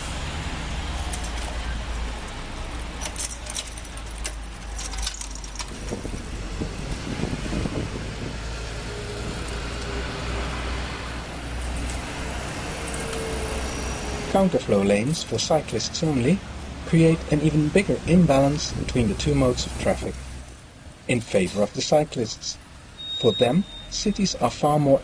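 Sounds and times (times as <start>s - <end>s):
low rumble of traffic: 0.0s - 25.0s
light clicks and rattles: 2.2s - 6.2s
car passing: 5.6s - 20.7s.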